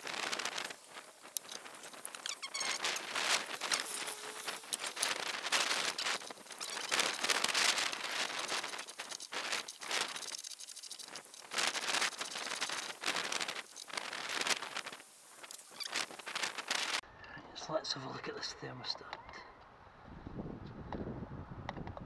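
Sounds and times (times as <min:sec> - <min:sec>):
rustling and handling noises: 0:00.0 - 0:17.0.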